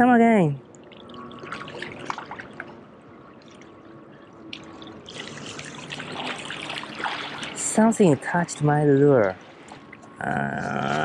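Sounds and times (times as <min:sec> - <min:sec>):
water lapping among rocks: 0:04.4 - 0:11.0.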